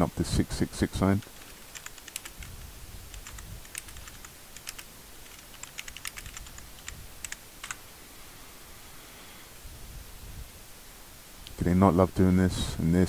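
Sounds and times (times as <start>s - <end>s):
keyboard key clicks: 1.3s - 2.4s, 3.1s - 7.8s.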